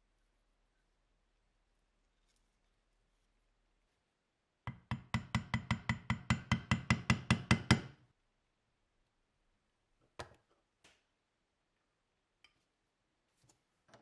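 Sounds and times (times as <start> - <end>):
hammer tapping metal punch: 4.7 - 8.0.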